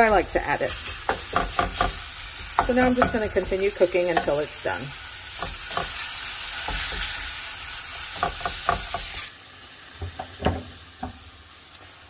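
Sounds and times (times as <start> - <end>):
meat sizzling in a pan: 0.0 - 12.0
wooden spatula scraping a pan: 0.8 - 9.3.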